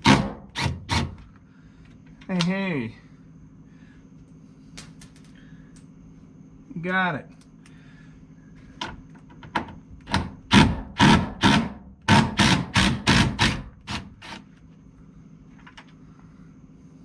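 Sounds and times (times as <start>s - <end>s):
cordless impact driver bursts: 10.5s - 14.4s.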